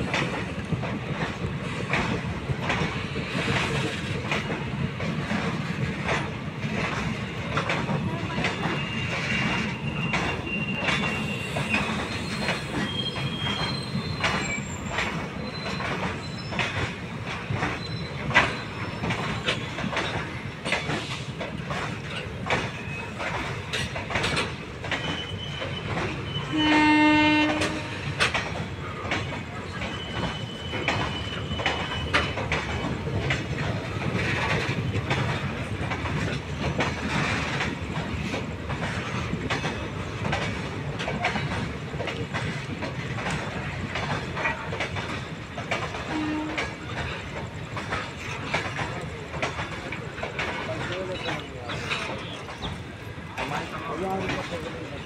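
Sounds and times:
train wheels rumbling and clattering: 0:00.0 - 0:55.0
high wheel squeals: 0:08.5 - 0:17.0, 0:17.6 - 0:19.8, 0:22.7 - 0:23.2, 0:24.9 - 0:27.2, 0:29.6 - 0:33.0
train horn blast: 0:26.4 - 0:28.2, 0:46.1 - 0:46.8.

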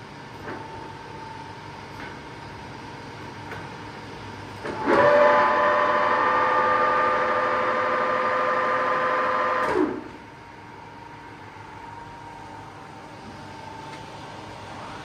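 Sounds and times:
lathe running with loud whine: 0:04.6 - 0:10.2.

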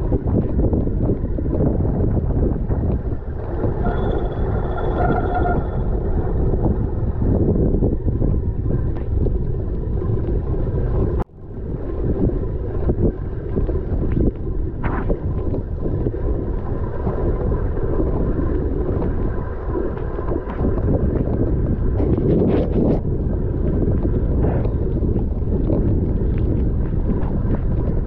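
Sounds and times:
bike tyre and drivetrain noise: 0:00.0 - 0:28.0
wind buffeting microphone: 0:00.0 - 0:28.0
brake disc rubbing whine: 0:03.2 - 0:08.9.

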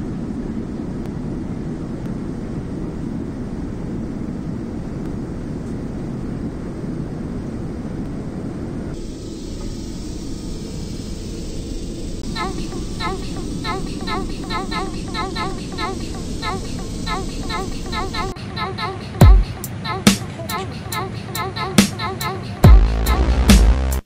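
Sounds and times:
thin hissy steady noise: 0:00.0 - 0:23.3
airplane cabin rumble: 0:00.0 - 0:23.8.

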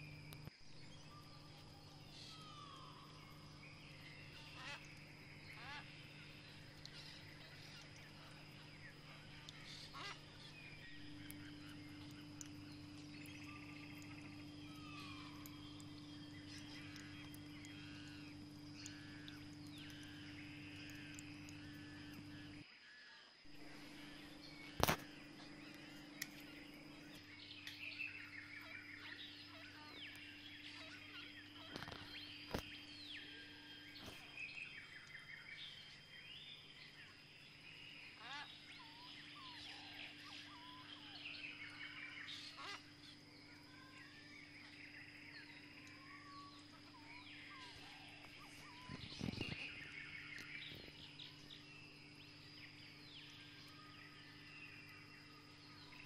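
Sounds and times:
low hum: 0:00.0 - 0:22.6, 0:23.5 - 0:37.1
birds chirping and twittering: 0:00.0 - 0:22.7, 0:23.4 - 0:56.0.

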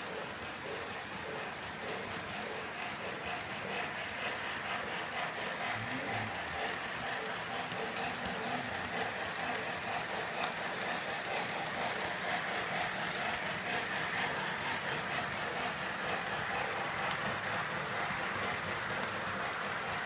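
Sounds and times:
light clicking over rails: 0:00.0 - 0:20.0
model train motors whirring: 0:00.0 - 0:20.0
wheels rolling on metal track: 0:00.0 - 0:20.0.

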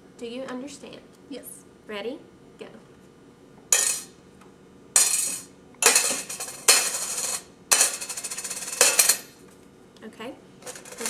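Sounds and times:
metal objects clinking into can: 0:03.8 - 0:04.1, 0:05.0 - 0:09.3, 0:10.6 - 0:11.0.

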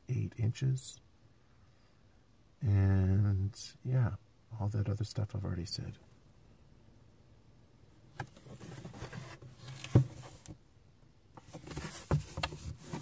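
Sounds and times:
rustling and rubbing: 0:08.2 - 0:10.6, 0:11.4 - 0:13.0.

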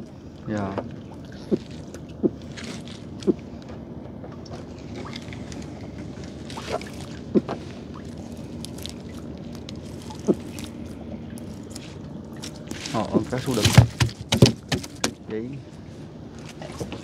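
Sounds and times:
gillnet rustling: 0:01.5 - 0:03.3, 0:04.6 - 0:15.2.

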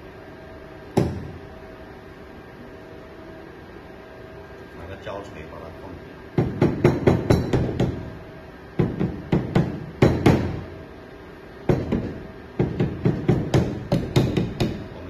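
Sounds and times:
rubber mallet knocking on metal: 0:06.4 - 0:08.0, 0:08.8 - 0:10.6, 0:11.7 - 0:14.9.

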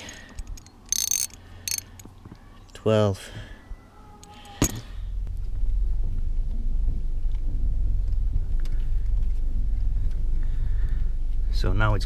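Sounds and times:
low rumble inside car cabin: 0:05.0 - 0:12.0.

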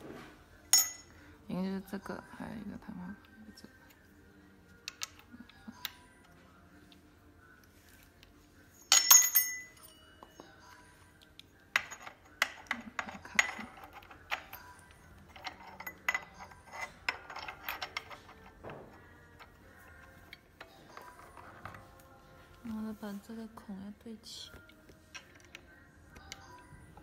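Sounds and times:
metal parts clinking and clicking: 0:08.8 - 0:09.9, 0:11.7 - 0:21.9, 0:25.1 - 0:26.6.

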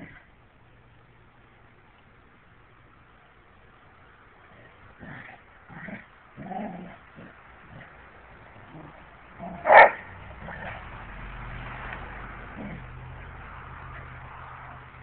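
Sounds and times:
dogs play-fighting: 0:04.7 - 0:14.2.

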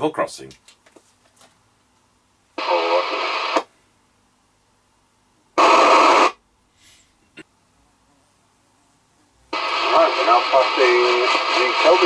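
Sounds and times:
radio speaker hiss bursts: 0:02.6 - 0:03.7, 0:05.6 - 0:06.4, 0:09.5 - 0:12.0.

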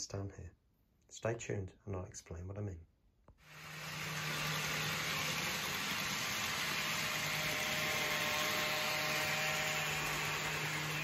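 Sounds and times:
model train whirring: 0:03.4 - 0:11.0.

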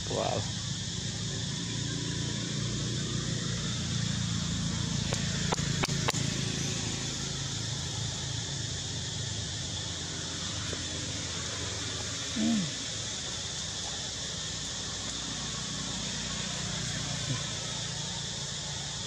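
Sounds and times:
hiss: 0:00.0 - 0:19.0
sharp clicks: 0:05.1 - 0:06.2.

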